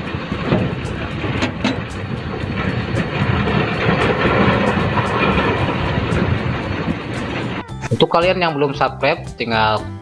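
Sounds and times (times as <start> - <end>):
large engine running: 0.0 - 7.8.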